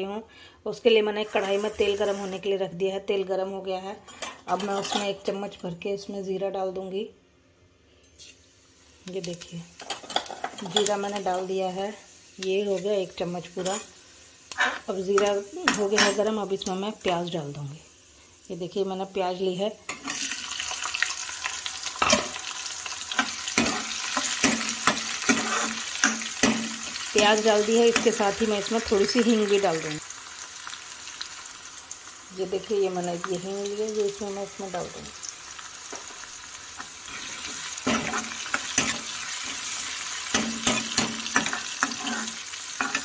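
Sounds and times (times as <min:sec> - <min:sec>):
onions sizzling in hot oil: 0:01.2 - 0:02.6, 0:08.2 - 0:43.0
metal ladle scraping a pan: 0:23.2 - 0:26.8, 0:37.1 - 0:43.0.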